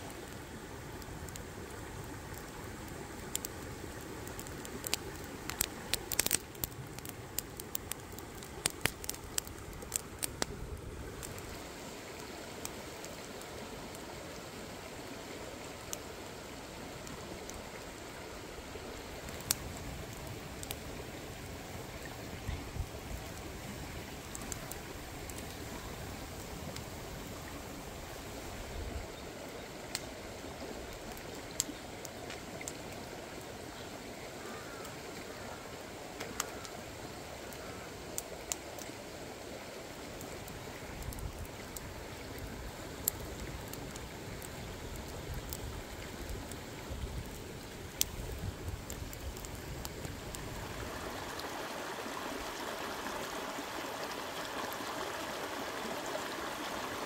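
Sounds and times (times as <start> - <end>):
wood fire crackling and popping: 1.2 - 14.1, 15.8 - 16.4, 19.0 - 27.9, 29.8 - 30.2, 36.1 - 36.8, 37.5 - 39.0, 40.1 - 50.6
rocky stream rushing: 50.0 - 57.0.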